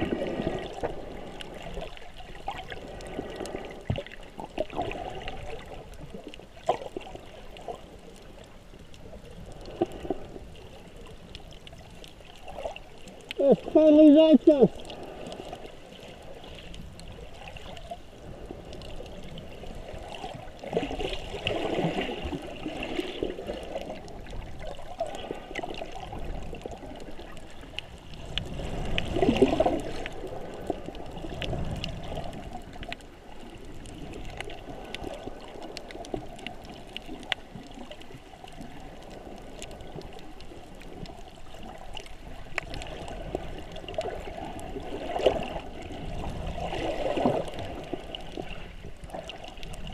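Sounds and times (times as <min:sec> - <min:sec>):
muffled underwater gurgling: 0:11.8 - 0:49.9.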